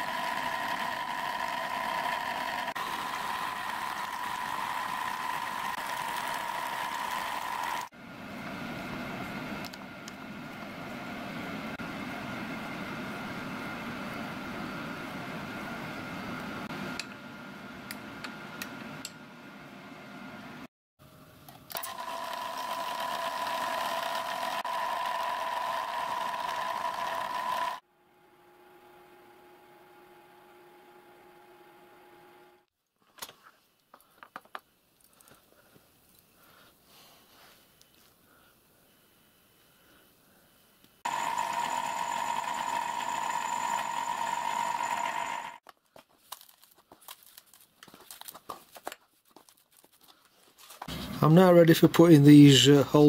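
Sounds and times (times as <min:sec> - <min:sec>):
milling machine whine: 0:00.0 - 0:18.0, 0:21.7 - 0:27.8, 0:41.1 - 0:45.6.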